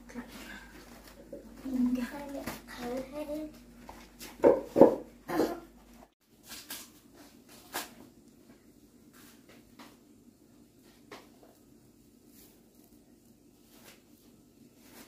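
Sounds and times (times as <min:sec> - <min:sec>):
person coughing: 0:05.3 - 0:05.7.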